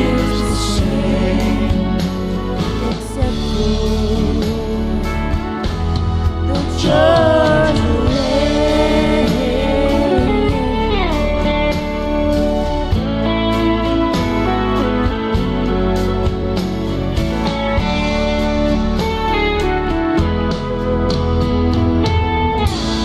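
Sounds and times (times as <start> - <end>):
person singing: 0.0 - 12.0
guitar backing track: 0.0 - 23.0.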